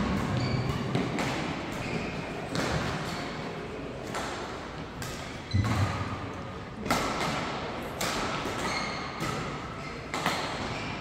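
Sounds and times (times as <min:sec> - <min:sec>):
racket hitting shuttlecock: 0:00.0 - 0:03.4, 0:04.0 - 0:10.9
shoe squeaks on court floor: 0:00.3 - 0:01.0, 0:01.7 - 0:02.4, 0:05.3 - 0:06.0, 0:08.6 - 0:09.2, 0:09.8 - 0:11.0.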